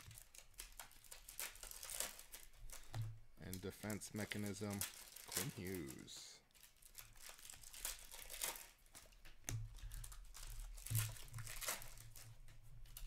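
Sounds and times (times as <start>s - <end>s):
cards swishing and rustling: 1.8s - 6.4s.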